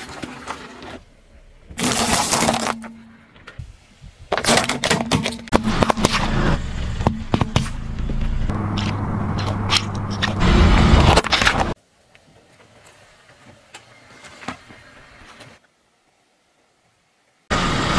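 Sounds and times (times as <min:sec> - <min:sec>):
tyre noise on asphalt: 0:00.0 - 0:15.8
tyre crushing small objects: 0:01.7 - 0:03.6
car engine hum: 0:05.6 - 0:11.8.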